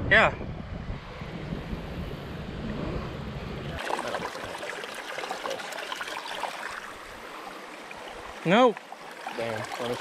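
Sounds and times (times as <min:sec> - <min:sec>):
wind rumbling on microphone: 0:00.0 - 0:03.8
running river water: 0:02.2 - 0:10.0
shallow water trickling: 0:03.8 - 0:10.0.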